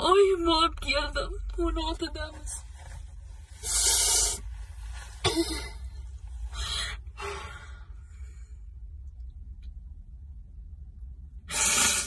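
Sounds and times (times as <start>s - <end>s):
low hum: 0.0s - 12.0s.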